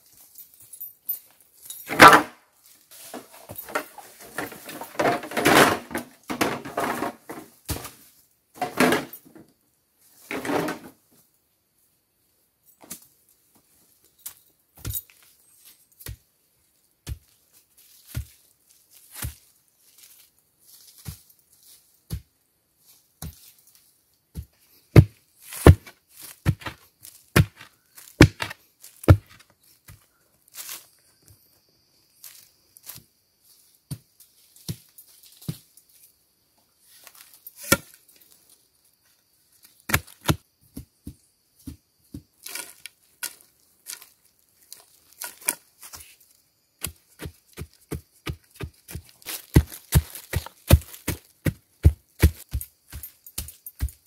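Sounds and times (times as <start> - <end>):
poles scraping over dry leaves: 1.9 - 9.1, 42.4 - 53.0
bamboo poles knocking together: 27.4 - 29.4
shovel chopping into earth: 27.4 - 29.4, 39.9 - 40.4.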